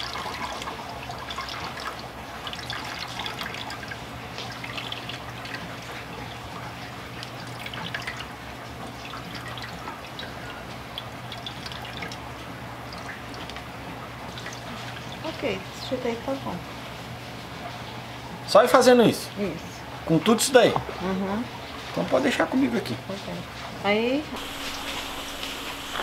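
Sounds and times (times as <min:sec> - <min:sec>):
juice dripping into metal pot: 0:00.0 - 0:16.0.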